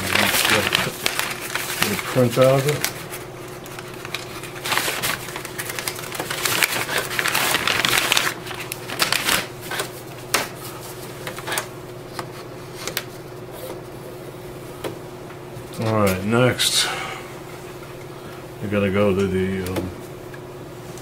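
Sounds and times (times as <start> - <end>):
paper rustling: 0.0 - 13.1.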